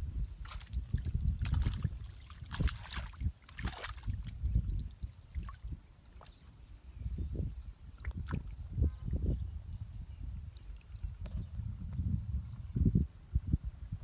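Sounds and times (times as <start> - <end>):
hands splashing in muddy water: 0.4 - 5.6.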